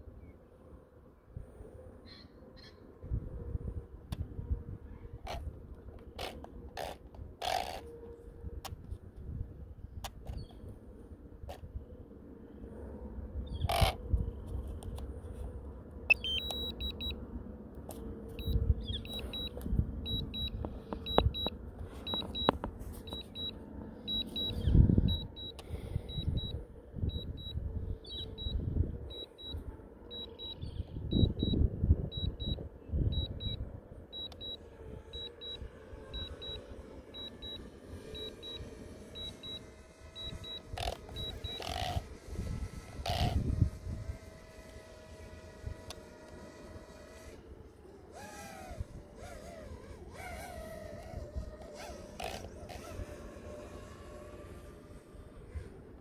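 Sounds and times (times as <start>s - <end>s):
electronic double beeps: 16.1s - 17.1s, 18.4s - 19.5s
wind buffeting microphone: 24.4s - 29.8s, 30.6s - 33.9s, 40.0s - 47.3s.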